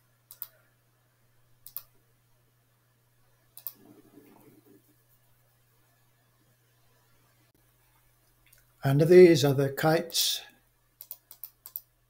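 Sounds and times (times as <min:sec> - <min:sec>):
computer mouse clicking: 0:00.3 - 0:00.6, 0:01.6 - 0:01.9, 0:03.6 - 0:04.8, 0:11.0 - 0:11.9.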